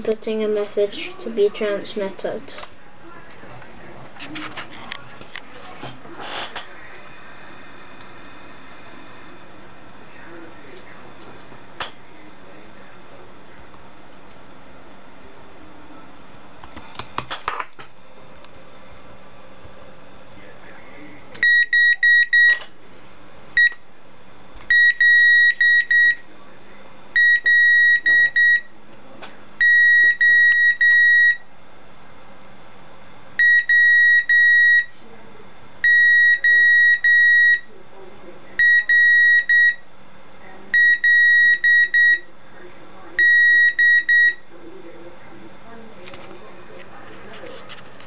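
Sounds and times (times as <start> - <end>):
buzzer beeping morse code: 21.4 - 22.6, 23.6 - 23.8, 24.7 - 26.2, 27.2 - 28.7, 29.6 - 31.5, 33.4 - 34.9, 35.8 - 37.7, 38.6 - 39.9, 40.8 - 42.3, 43.2 - 44.4.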